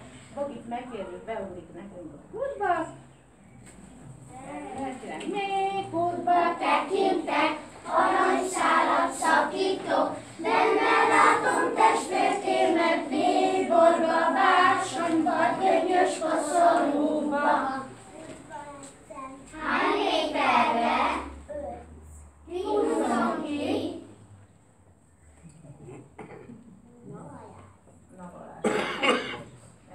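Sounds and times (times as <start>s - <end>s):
children singing: 5.8s - 18.0s, 19.6s - 21.4s, 22.5s - 24.1s.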